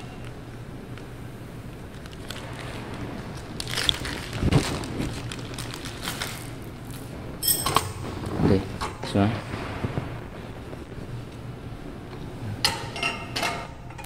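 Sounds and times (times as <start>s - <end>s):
plastic bag crinkling: 1.7s - 7.1s.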